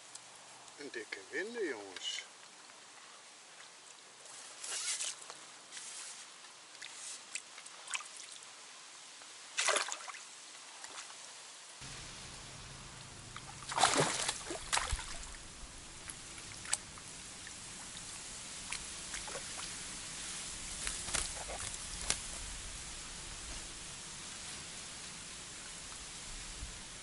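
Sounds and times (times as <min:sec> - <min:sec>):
fish splashing in water: 0:11.9 - 0:23.0.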